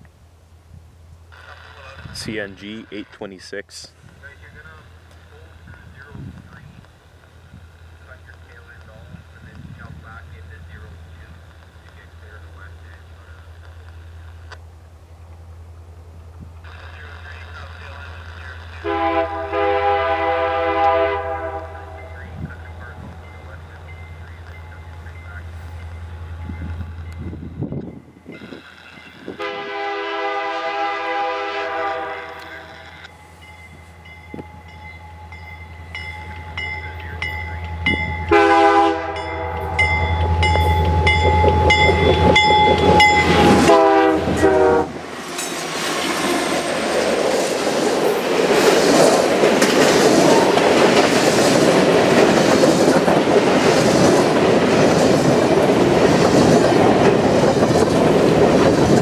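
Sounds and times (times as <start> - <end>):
diesel locomotive rumble: 0.0 - 59.0
train air horn blasts: 18.8 - 22.4, 29.3 - 32.8, 38.2 - 45.0
wheels clacking over rail joints: 39.2 - 43.7, 45.1 - 59.0
freight cars rolling by: 39.2 - 59.0.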